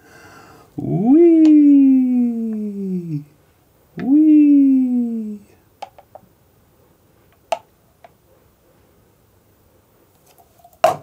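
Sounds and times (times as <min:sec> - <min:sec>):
person humming: 0:00.7 - 0:03.3, 0:04.0 - 0:05.6.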